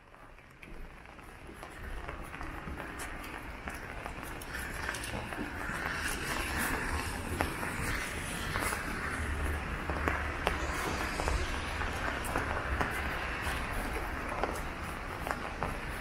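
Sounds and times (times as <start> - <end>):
footsteps on wet pavement: 0.0 - 16.0
rain on an umbrella: 0.0 - 16.0
low rumble: 4.9 - 14.3.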